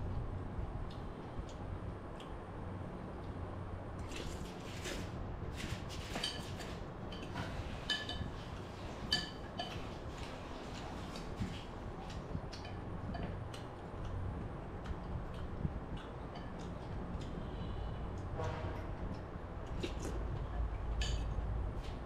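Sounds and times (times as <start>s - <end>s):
low steady hum: 0.0s - 22.0s
utensils clinking ceramic bowl: 9.0s - 10.0s.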